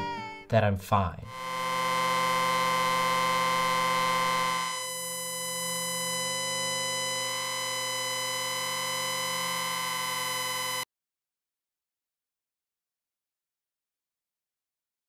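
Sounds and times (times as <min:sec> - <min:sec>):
sustained synthesizer chord: 0:01.3 - 0:10.8.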